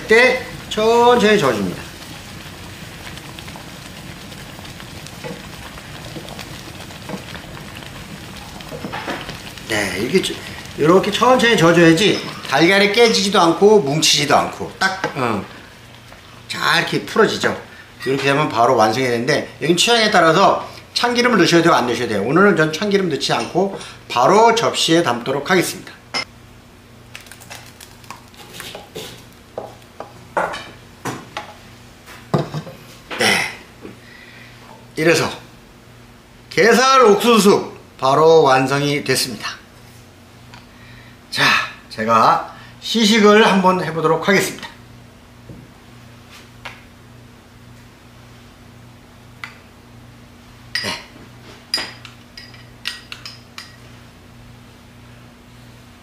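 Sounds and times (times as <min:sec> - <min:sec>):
soup bubbling in a frying pan: 0:00.0 - 0:17.2
crackling hiss with ticks: 0:00.1 - 0:13.1.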